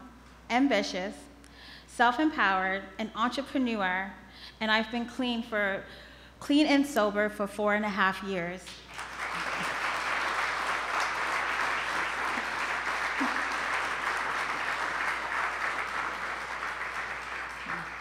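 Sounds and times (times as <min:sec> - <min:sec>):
audience applauding: 0:08.8 - 0:18.0.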